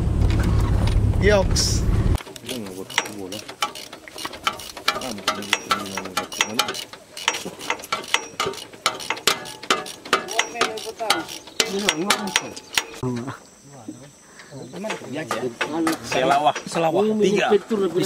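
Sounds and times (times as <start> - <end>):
people talking: 1.2 - 1.8, 2.4 - 3.5, 4.9 - 6.8, 10.2 - 18.0
ratchet clicking: 2.2 - 13.0.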